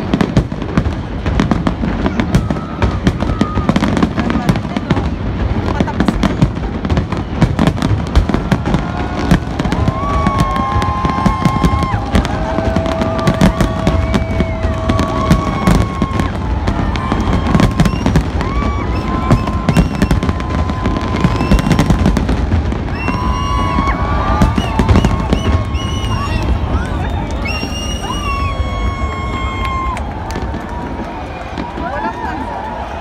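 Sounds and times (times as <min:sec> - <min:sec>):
fireworks bursting and crackling: 0:00.0 - 0:33.0.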